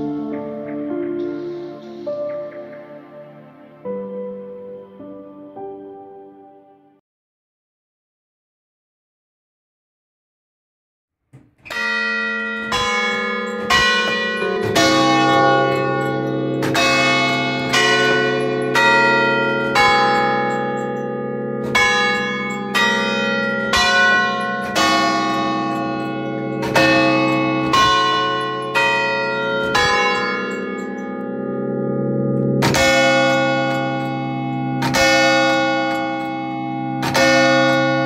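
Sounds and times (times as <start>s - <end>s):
church bells ringing: 0.0s - 4.8s, 11.6s - 38.0s
deeper bell tone: 11.7s - 38.0s.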